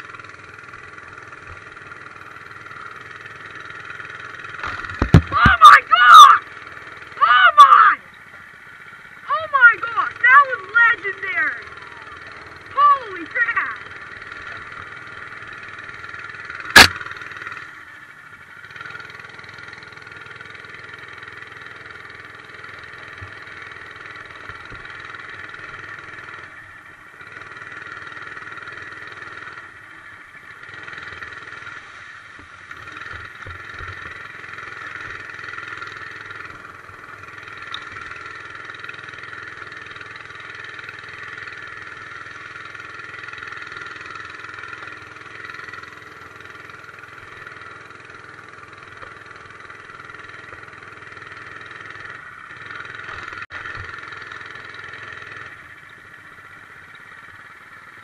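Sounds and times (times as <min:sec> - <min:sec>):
mini bike engine revving: 0:00.0 - 0:58.0
sharp knock: 0:16.8 - 0:17.1.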